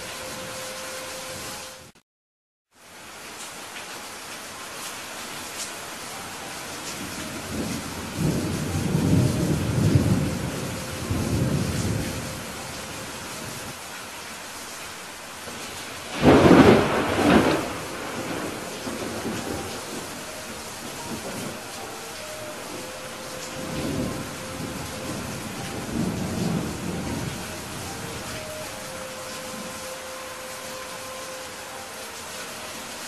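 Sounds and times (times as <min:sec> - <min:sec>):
steady rain hissing: 0:00.0 - 0:02.0, 0:02.7 - 0:33.0
rolling thunder: 0:07.2 - 0:13.7, 0:16.0 - 0:28.5
sharp thunderclap: 0:16.1 - 0:20.0.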